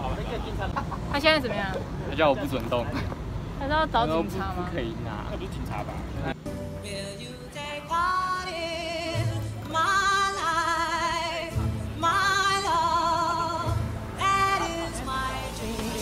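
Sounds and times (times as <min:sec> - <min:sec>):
person singing with vibrato: 0:06.7 - 0:16.0.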